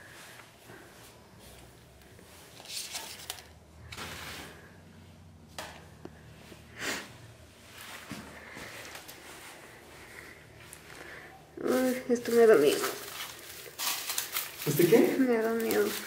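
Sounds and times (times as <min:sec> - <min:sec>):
papers rustling and scraping: 0:02.2 - 0:04.7, 0:11.7 - 0:16.0.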